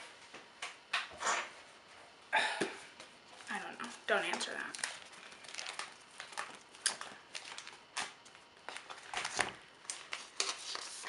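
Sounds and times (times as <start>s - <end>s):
plastic sleeves rustling: 3.4s - 11.0s.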